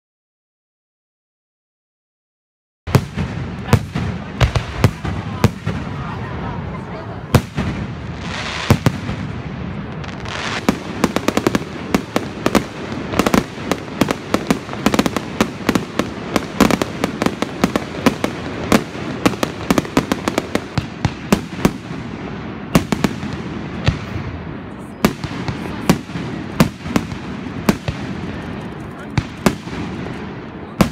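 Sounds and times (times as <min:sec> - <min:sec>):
fireworks bursting: 0:02.9 - 0:30.9.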